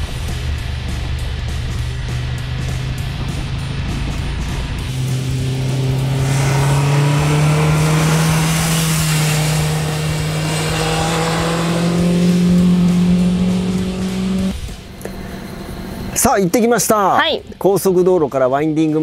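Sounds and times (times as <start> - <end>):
motorcycle engine accelerating: 0.0 - 16.2.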